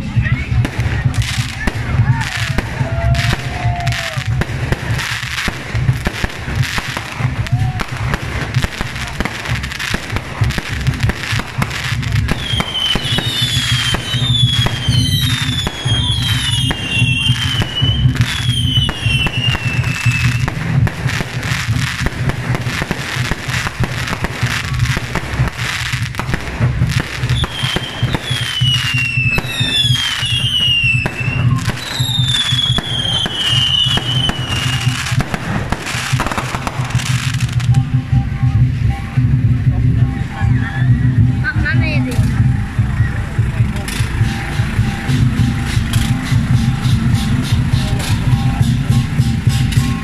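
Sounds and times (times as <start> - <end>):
firework bangs and crackles: 0.0 - 50.0
falling firework whistles: 12.3 - 22.0, 27.0 - 37.8.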